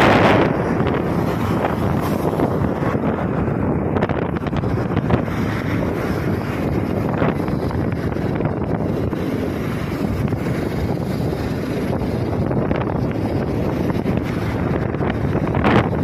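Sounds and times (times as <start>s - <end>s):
vehicle road noise: 0.0s - 16.0s
wind buffeting microphone: 0.0s - 16.0s.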